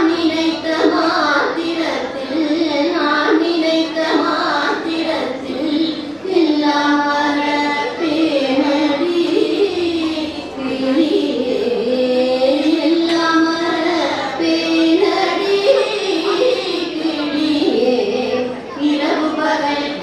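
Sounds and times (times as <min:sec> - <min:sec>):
women singing together: 0:00.0 - 0:20.0.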